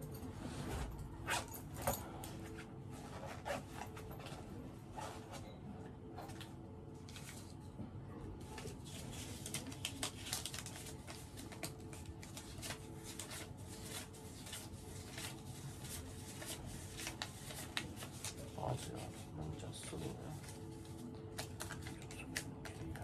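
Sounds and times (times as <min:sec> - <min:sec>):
paper rustling: 0:08.4 - 0:23.0.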